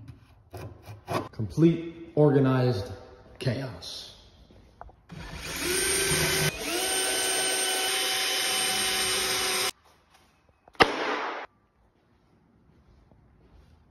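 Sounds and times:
cordless drill whining: 5.1s - 9.7s
drill click: 5.1s - 9.7s.

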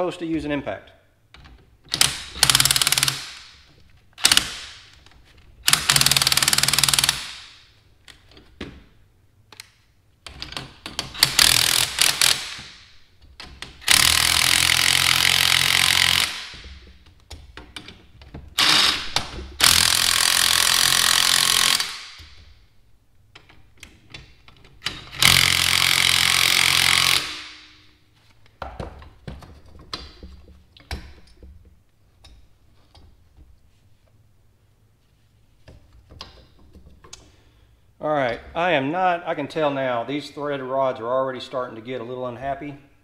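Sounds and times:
impact wrench hammering: 1.9s - 5.0s, 5.6s - 7.6s, 10.9s - 12.9s, 13.7s - 18.0s, 24.9s - 27.9s.

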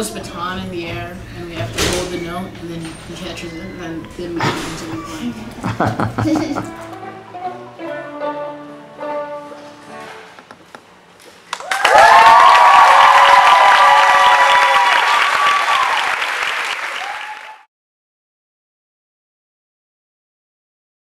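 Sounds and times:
violin ensemble playing: 6.3s - 10.3s
audience applause and cheering: 11.5s - 17.7s.

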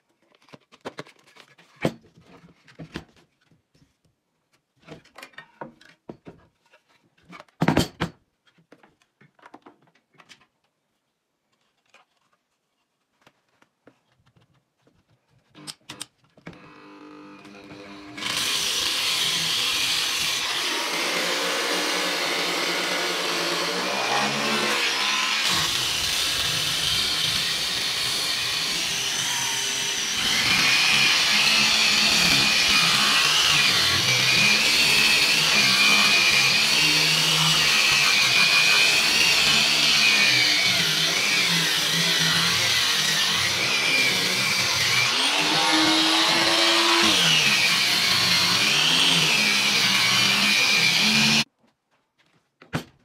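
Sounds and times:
angle grinder spinning: 16.6s - 51.5s.

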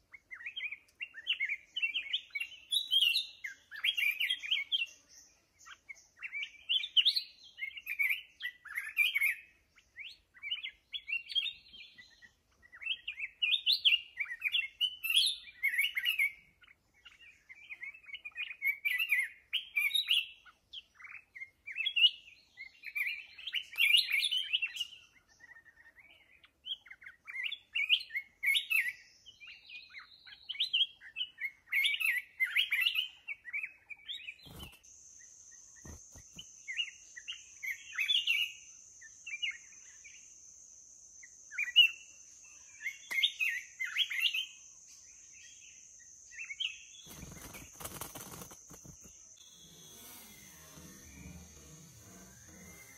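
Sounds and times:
bird warbling chirps: 29.8s - 34.8s.

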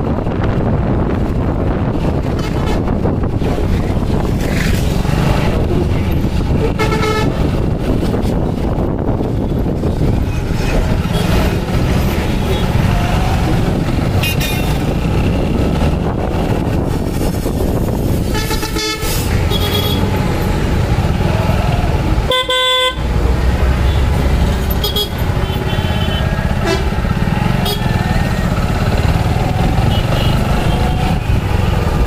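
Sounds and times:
road traffic rumble: 0.0s - 32.0s
car horns honking: 6.6s - 7.5s, 18.3s - 20.1s, 22.2s - 23.1s, 24.7s - 27.0s, 27.6s - 28.0s, 29.8s - 30.9s.

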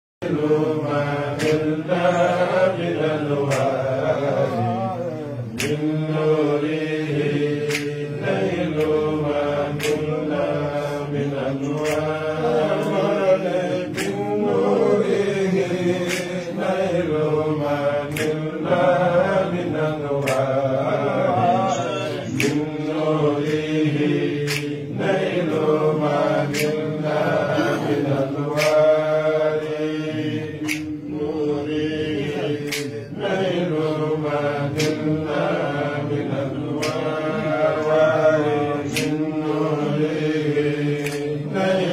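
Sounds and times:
voices chanting: 0.2s - 41.9s.

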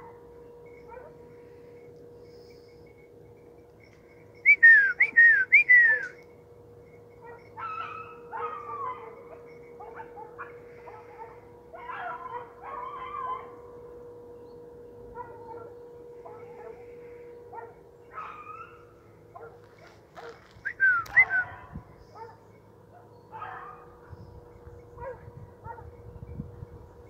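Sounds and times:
distant animal yelps: 7.2s - 13.6s.

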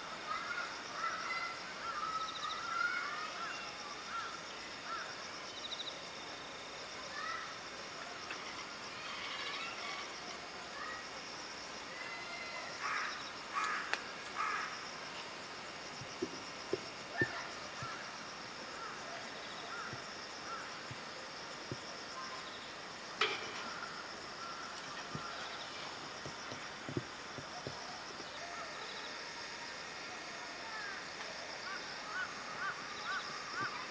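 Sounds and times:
faint knocks: 16.0s - 18.0s, 23.2s - 27.9s.

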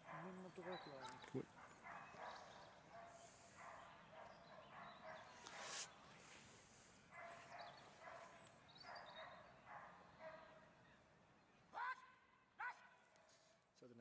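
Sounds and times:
dog barking faintly: 0.0s - 6.0s.

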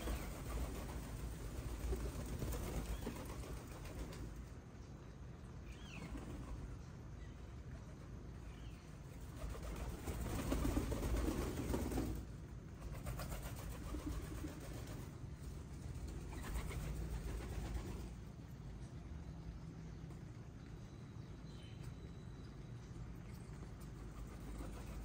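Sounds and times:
pigeons cooing: 0.0s - 4.2s, 16.0s - 18.2s
wingbeats: 0.0s - 4.4s, 9.2s - 18.3s, 23.8s - 25.0s.

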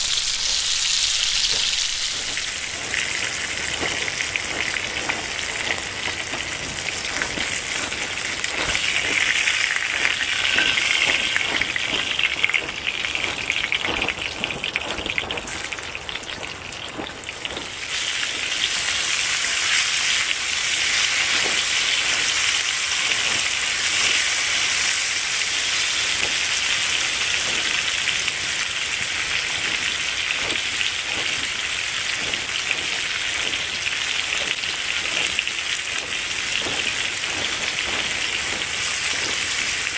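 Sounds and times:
hot fat sizzling and crackling: 0.0s - 39.9s.

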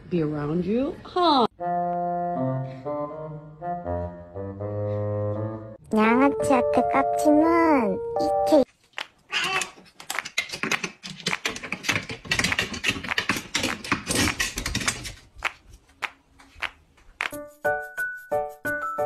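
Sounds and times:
cat claws scraping wooden rungs: 9.4s - 15.5s.

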